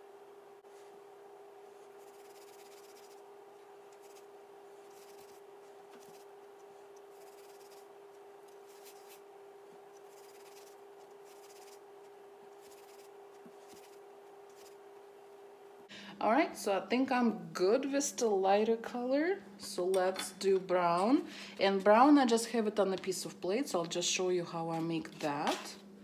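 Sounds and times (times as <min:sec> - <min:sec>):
steady hum: 0:00.0 - 0:26.0
paper towel rubbing on cake: 0:01.7 - 0:03.2, 0:03.9 - 0:06.3, 0:07.1 - 0:07.9, 0:08.5 - 0:14.8.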